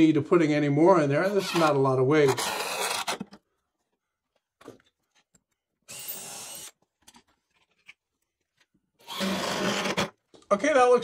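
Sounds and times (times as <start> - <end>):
cordless driver driving screw into wood: 1.3 - 3.4, 9.0 - 10.1.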